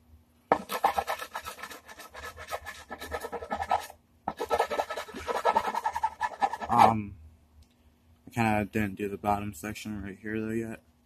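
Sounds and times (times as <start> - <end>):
abrasive tool scraping wood: 0.5 - 7.1.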